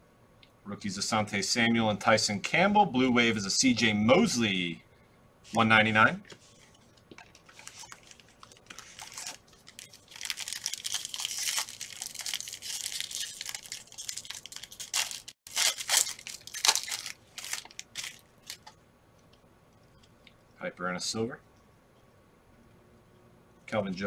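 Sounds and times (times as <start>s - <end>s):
wrapper ripping and crinkling: 7.1s - 18.7s.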